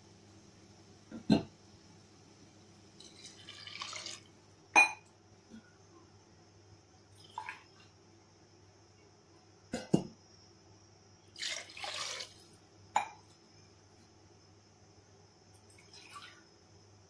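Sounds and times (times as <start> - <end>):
hot water pouring into pot: 3.0 - 4.4, 11.4 - 12.5.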